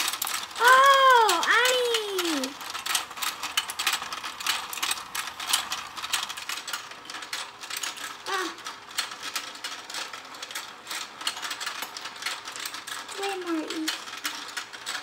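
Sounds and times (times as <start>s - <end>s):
faint motor hum: 0.0s - 15.0s
plastic gears clicking and clattering: 0.0s - 15.0s.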